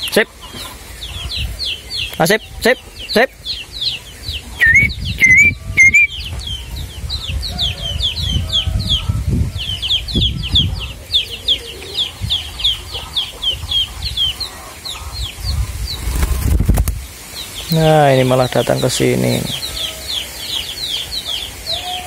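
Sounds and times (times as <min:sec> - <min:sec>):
young bird peeping: 0:00.0 - 0:22.0.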